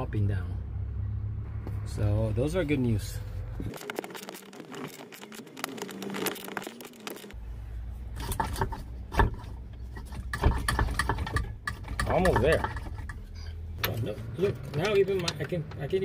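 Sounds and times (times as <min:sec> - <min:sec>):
tools scraping and knocking on metal: 0:08.1 - 0:15.6.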